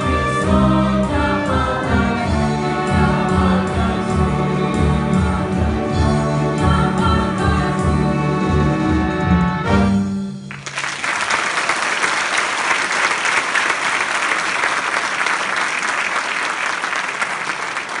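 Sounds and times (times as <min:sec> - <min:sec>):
audience applause: 0:10.5 - 0:18.0.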